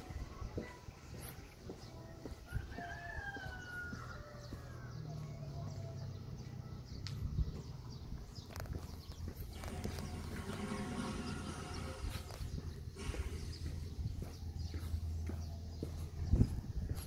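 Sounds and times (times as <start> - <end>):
rooster crowing: 2.5 - 6.0
low hum: 9.3 - 15.8.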